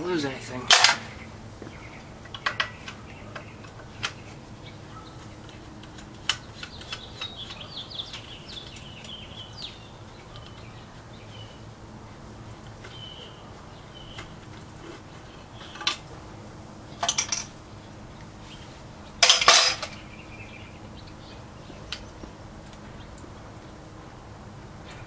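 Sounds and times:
bird chirping: 0:01.0 - 0:11.7, 0:12.5 - 0:16.0, 0:19.8 - 0:23.8.

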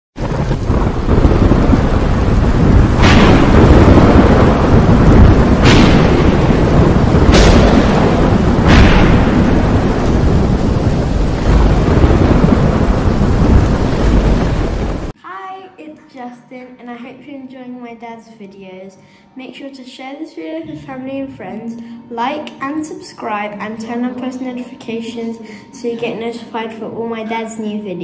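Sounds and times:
heavy storm rumble: 0:00.2 - 0:15.2
sharp thunder cracks: 0:00.2 - 0:15.2.

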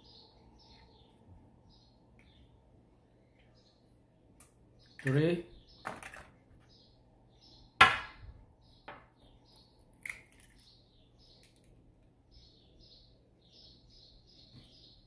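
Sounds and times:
egg cracking against bowl: 0:09.9 - 0:10.7
eggshell clicks: 0:09.9 - 0:10.7.

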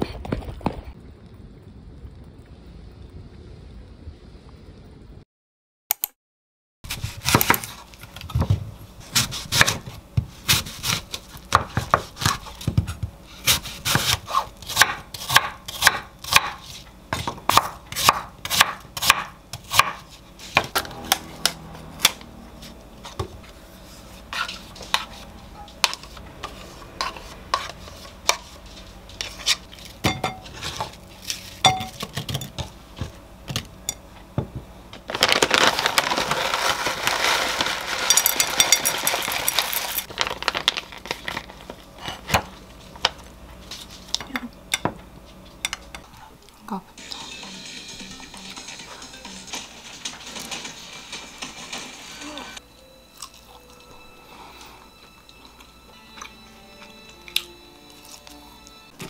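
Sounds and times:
knife chopping on wooden board: 0:09.2 - 0:21.2.

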